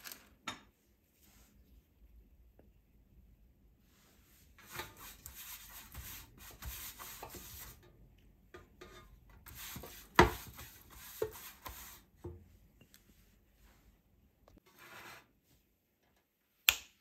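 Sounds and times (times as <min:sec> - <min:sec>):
pastry brush scratching pan: 0:04.5 - 0:07.9, 0:08.6 - 0:12.2.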